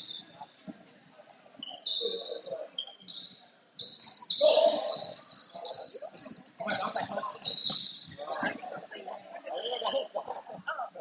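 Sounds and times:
voices: 0.0 - 11.0
sneakers squeaking on gym floor: 1.6 - 8.2, 9.0 - 10.7.

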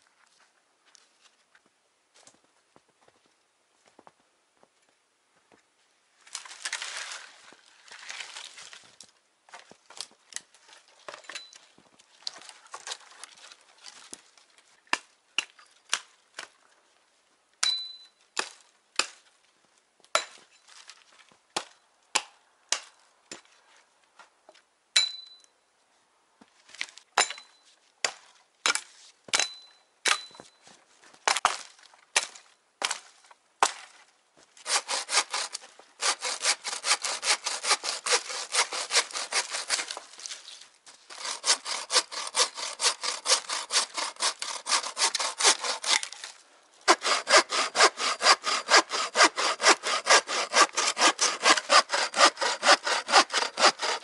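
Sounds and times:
hand saw cutting wood: 34.6 - 40.3, 41.1 - 54.0.

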